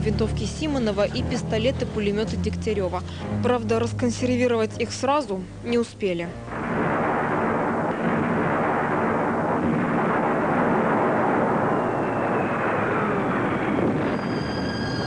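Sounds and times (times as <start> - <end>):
din of explosions: 6.4 - 15.0.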